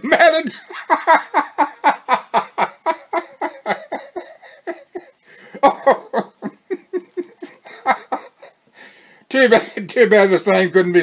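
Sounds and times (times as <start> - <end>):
man laughing heartily: 0.5 - 8.6.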